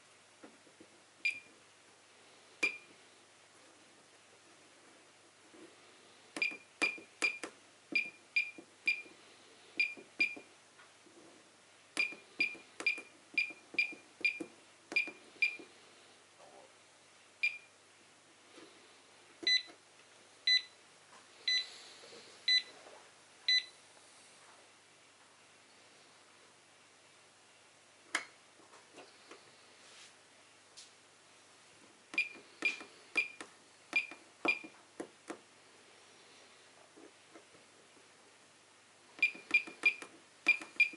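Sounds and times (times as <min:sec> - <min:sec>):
keypad beeps with clicks: 0:01.2 - 0:01.5, 0:02.6 - 0:02.9, 0:06.4 - 0:09.1, 0:09.8 - 0:10.5, 0:12.0 - 0:15.7, 0:17.4 - 0:17.7, 0:19.4 - 0:19.8, 0:23.5 - 0:23.7, 0:32.2 - 0:34.8, 0:39.2 - 0:40.9
buzzer timer beeps: 0:09.8 - 0:10.5, 0:12.0 - 0:15.7, 0:19.4 - 0:19.7, 0:23.5 - 0:23.7, 0:34.0 - 0:34.7, 0:39.2 - 0:40.9.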